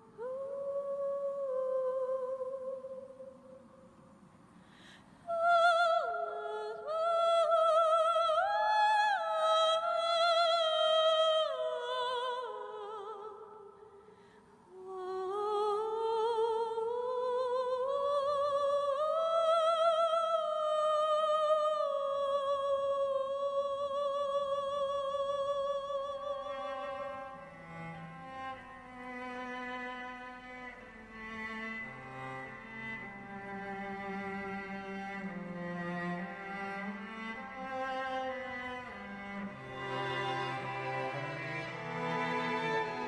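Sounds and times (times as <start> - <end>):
woman singing wordless vocalise: 0.0 - 3.8, 4.9 - 27.4
singer breathing: 4.5 - 5.3, 13.9 - 14.7.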